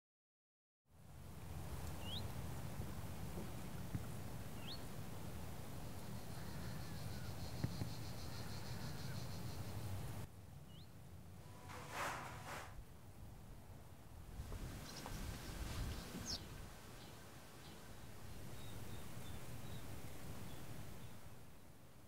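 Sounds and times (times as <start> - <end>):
faint high insect trill: 5.8 - 10.2.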